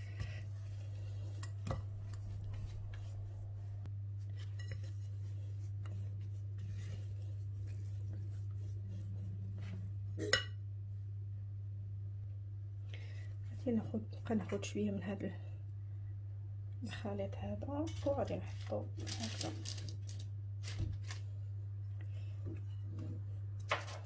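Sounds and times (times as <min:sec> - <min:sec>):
spatula scraping dough in bowl: 0:00.0 - 0:10.4
steady low hum: 0:00.0 - 0:24.0.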